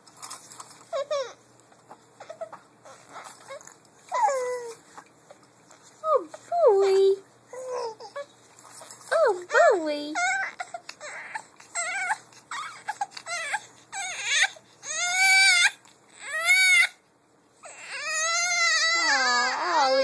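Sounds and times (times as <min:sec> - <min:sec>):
infant crying: 0:10.2 - 0:17.0, 0:17.6 - 0:20.0.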